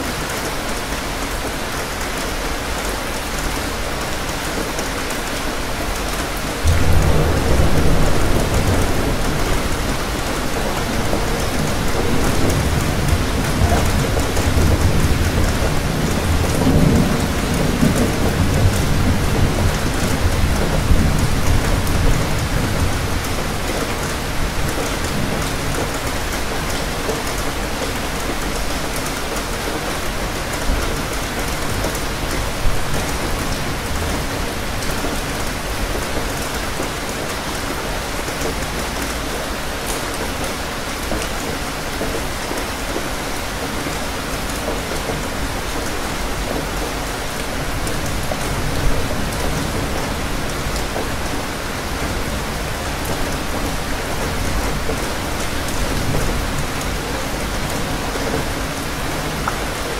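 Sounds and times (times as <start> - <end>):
steady rain falling: 0.0 - 59.9
low thunder rumble: 6.6 - 23.5.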